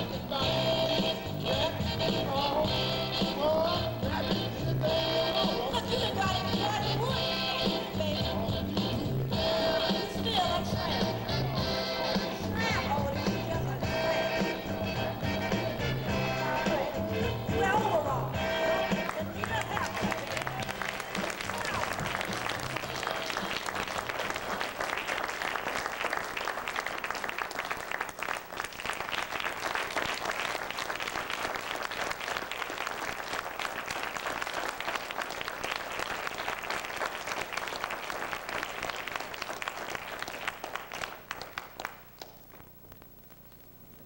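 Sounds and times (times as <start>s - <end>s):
audience applauding: 18.6s - 42.6s.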